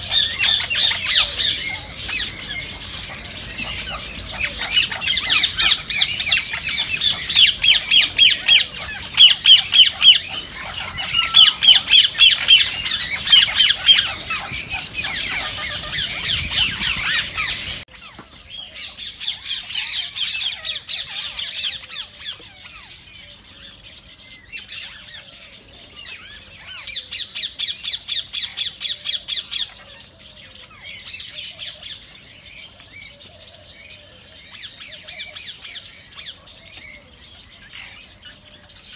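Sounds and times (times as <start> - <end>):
parakeets screeching: 0.0 - 18.2.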